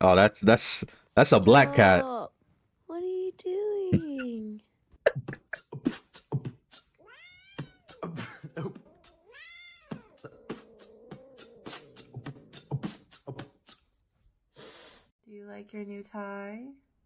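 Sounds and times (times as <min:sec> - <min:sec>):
cat meowing: 0:07.0 - 0:08.0, 0:08.9 - 0:12.0.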